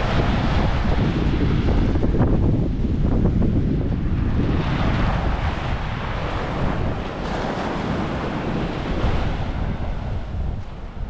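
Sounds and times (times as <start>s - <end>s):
surf breaking on beach: 0.0s - 11.0s
wind rumbling on microphone: 0.0s - 11.0s.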